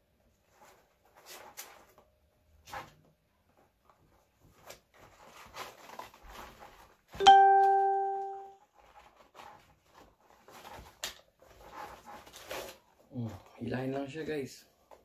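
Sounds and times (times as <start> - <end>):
sharp bell-like ding: 7.2 - 8.5.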